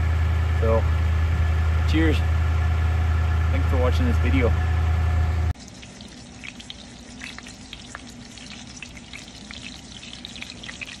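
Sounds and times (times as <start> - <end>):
fish sizzling in hot oil: 5.6 - 11.0.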